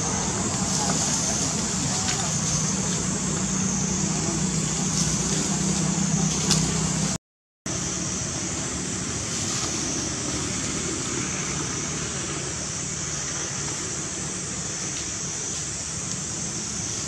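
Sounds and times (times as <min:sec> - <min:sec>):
high hiss: 0:00.0 - 0:17.0.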